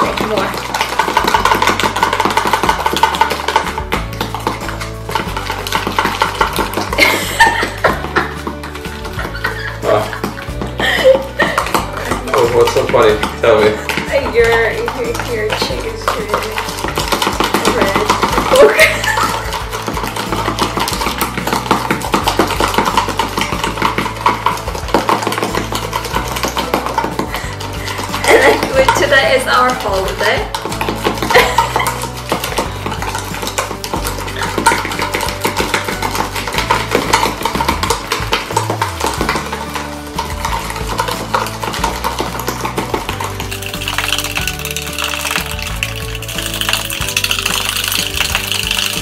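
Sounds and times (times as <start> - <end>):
background music with bass: 0.0 - 49.0
metal spoons whipping in plastic tubs: 0.0 - 49.0.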